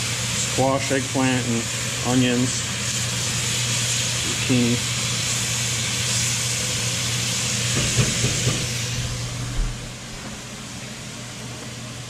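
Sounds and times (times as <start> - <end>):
vegetables sizzling in pot: 0.0 - 10.5
spoon knocking on pot: 7.7 - 8.7.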